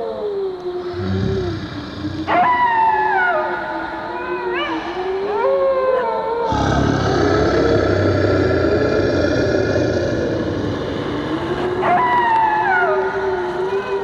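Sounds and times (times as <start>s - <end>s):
wavering howl: 0.0s - 14.0s
rumbling rush of noise: 6.5s - 13.5s.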